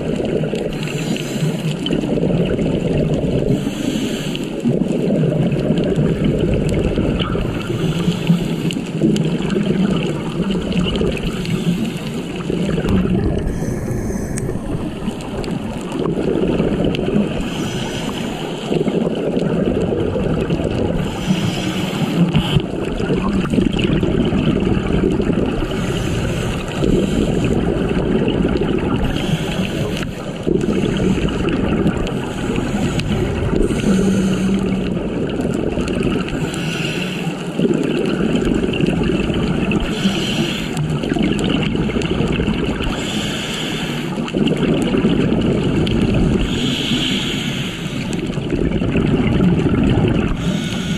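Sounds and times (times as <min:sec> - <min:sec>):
exhaled bubbles: 0:00.0 - 0:50.9
diver breathing through regulator: 0:00.7 - 0:02.2, 0:03.5 - 0:04.7, 0:07.6 - 0:09.0, 0:11.2 - 0:16.2, 0:16.8 - 0:19.4, 0:21.0 - 0:22.8, 0:25.6 - 0:27.9, 0:29.0 - 0:35.1, 0:36.1 - 0:37.7, 0:39.7 - 0:41.2, 0:42.3 - 0:44.5, 0:46.2 - 0:48.4, 0:50.2 - 0:50.9
low underwater rumble: 0:04.6 - 0:50.9.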